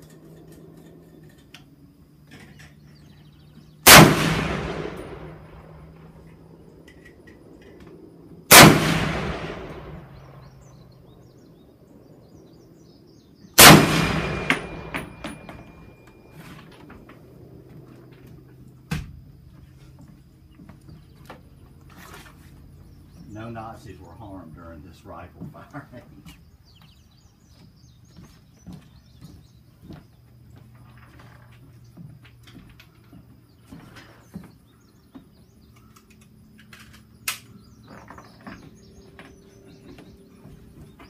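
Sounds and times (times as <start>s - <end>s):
rifle shots with echo: 3.8s - 6.5s, 8.5s - 10.6s, 13.6s - 15.9s.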